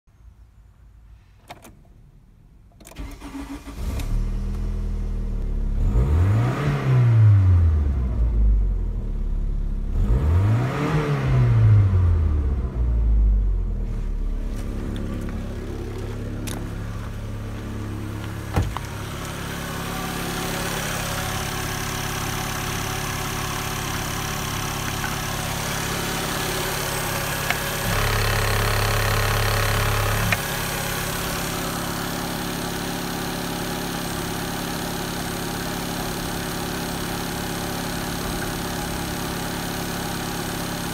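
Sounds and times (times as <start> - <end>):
car engine starting and revving: 2.9 - 40.9
car engine idling: 12.8 - 40.9.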